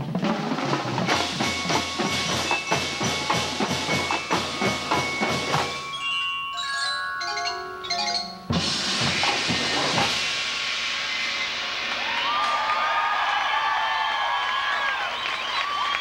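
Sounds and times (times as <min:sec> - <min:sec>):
marching drumline playing: 0:00.0 - 0:06.0, 0:08.5 - 0:11.9.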